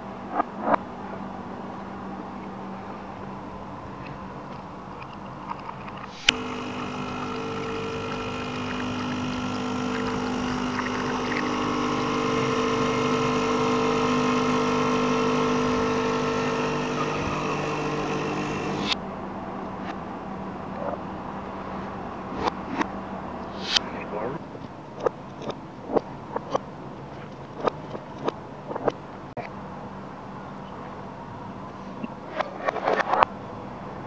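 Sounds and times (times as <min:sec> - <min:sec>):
coffee running from spout: 0:06.3 - 0:19.0
espresso machine pump humming: 0:06.3 - 0:19.0.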